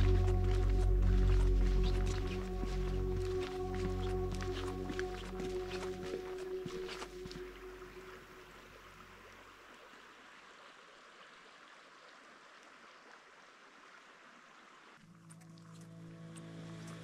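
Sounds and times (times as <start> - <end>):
background music: 0.0 - 8.8, 15.1 - 17.0
forest stream rushing: 0.0 - 17.0.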